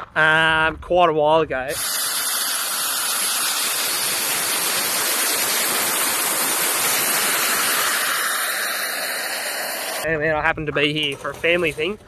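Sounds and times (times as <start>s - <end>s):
turbojet engine rushing: 1.7s - 10.1s.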